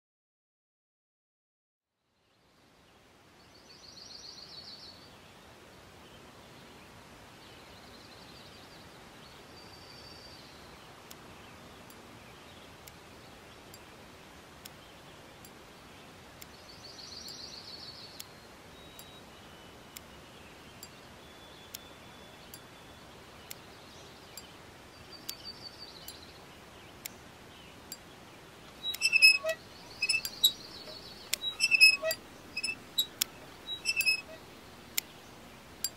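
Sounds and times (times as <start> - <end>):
steady background hiss: 2.0 - 35.9
birds chirping in trills: 16.5 - 35.9
sharp clicks: 28.7 - 35.2.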